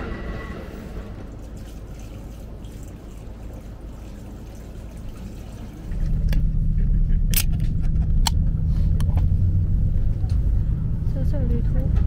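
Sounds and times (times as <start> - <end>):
low background rumble: 0.0 - 12.0
water trickling and lapping: 0.8 - 6.4.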